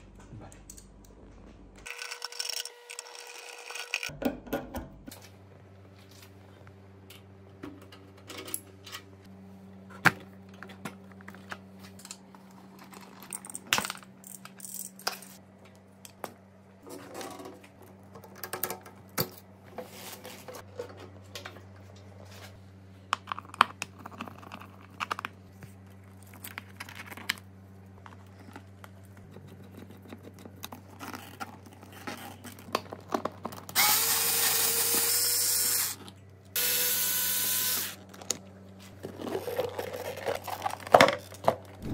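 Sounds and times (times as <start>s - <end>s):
cordless drill driving screws: 33.8s - 36.0s, 36.6s - 38.0s.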